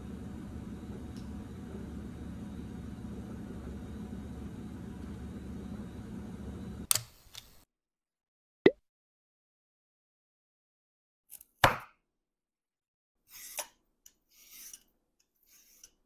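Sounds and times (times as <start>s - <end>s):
low room hum: 0.0s - 6.9s.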